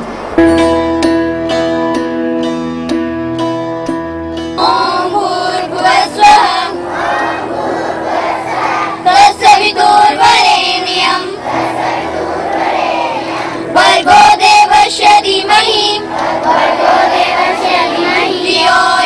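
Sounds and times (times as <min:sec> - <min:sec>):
plucked string music: 0:00.0 - 0:10.1
children singing in chorus: 0:04.6 - 0:19.0.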